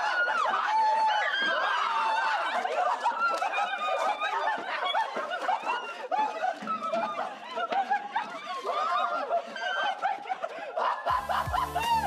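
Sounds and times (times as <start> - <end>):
people laughing and squealing: 0.0 - 12.0.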